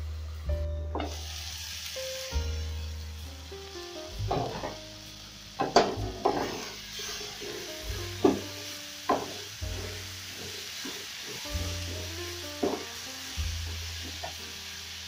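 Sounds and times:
background music: 0.0s - 15.0s
soft sizzle of frying: 0.0s - 15.0s
spatula scraping frying pan: 4.3s - 4.8s, 5.6s - 12.9s.

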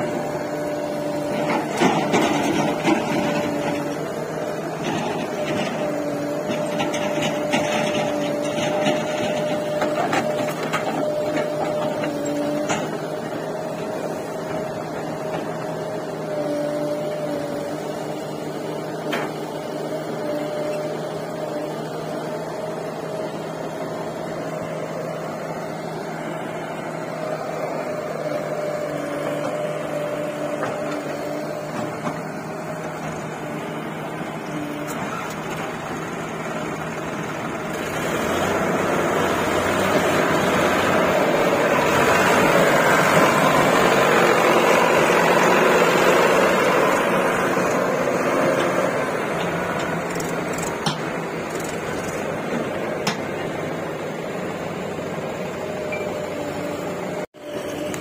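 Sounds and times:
diesel engine running and revving: 0.0s - 58.0s.

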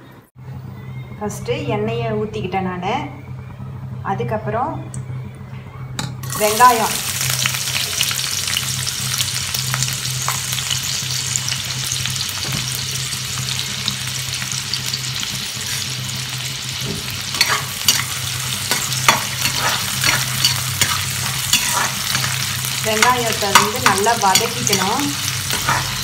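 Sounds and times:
onions sizzling in oil: 6.2s - 26.0s
spoon scraping pan: 16.8s - 26.0s.

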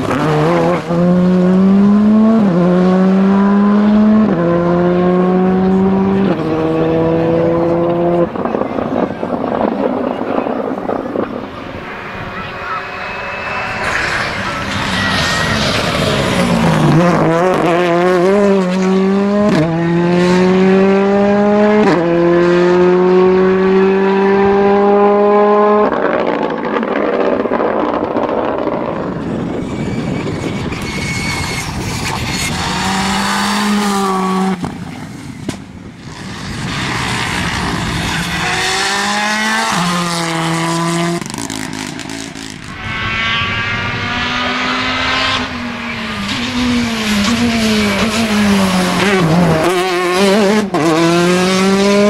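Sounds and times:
engine revving through gears: 0.0s - 8.2s, 13.1s - 26.3s, 36.2s - 52.0s
rally cars accelerating past: 0.0s - 35.4s, 36.0s - 52.0s.

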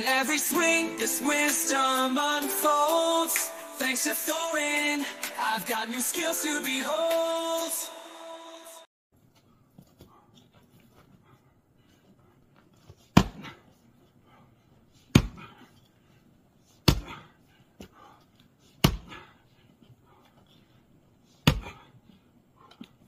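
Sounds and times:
splitting maul striking firewood: 15.1s - 15.5s, 18.8s - 19.2s, 21.4s - 21.8s.

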